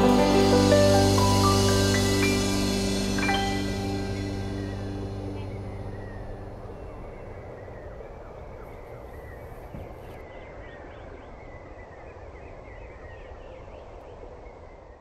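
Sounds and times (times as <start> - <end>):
low steady rumble: 0.0 - 10.2
birds chirping: 0.0 - 15.0.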